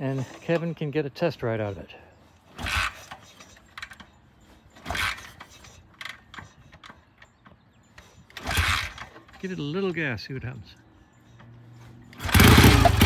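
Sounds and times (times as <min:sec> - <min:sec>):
small metallic clicks: 0:02.4 - 0:09.6
motorcycle kick-start turning over: 0:02.5 - 0:04.1, 0:04.8 - 0:07.0, 0:08.3 - 0:09.4, 0:12.1 - 0:13.0.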